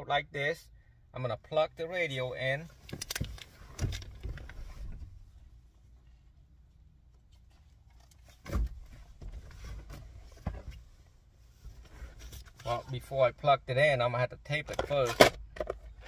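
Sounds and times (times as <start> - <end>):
low steady hum: 0.0 - 16.0
knocks and handling clunks: 7.2 - 11.0, 14.6 - 16.0.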